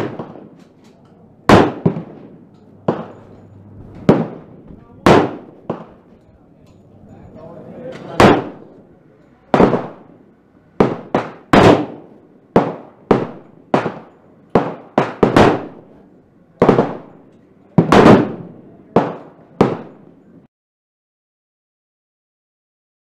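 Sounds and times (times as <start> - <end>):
pistol shots with echo: 0.0 - 0.8, 1.4 - 6.2, 7.9 - 8.8, 9.5 - 16.0, 16.6 - 20.2.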